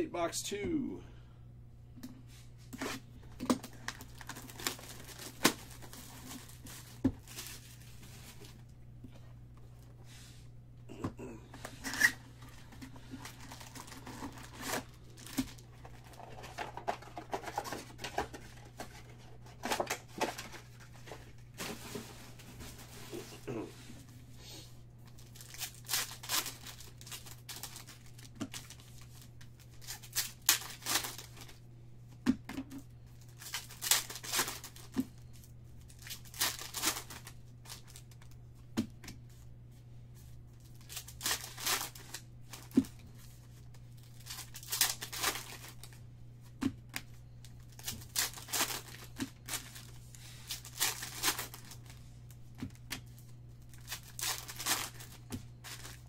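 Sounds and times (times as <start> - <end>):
low steady hum: 0.0 - 56.0
foil packs tearing and crinkling: 3.6 - 8.6, 11.8 - 23.3, 25.1 - 31.6, 33.2 - 38.3, 40.7 - 46.0, 47.4 - 52.0, 53.6 - 56.0.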